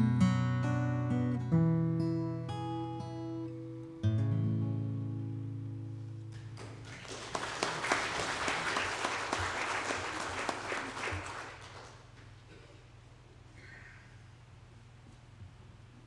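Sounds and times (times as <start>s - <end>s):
acoustic guitar chord ringing: 0.0s - 6.6s
congregation applauding: 6.4s - 12.3s.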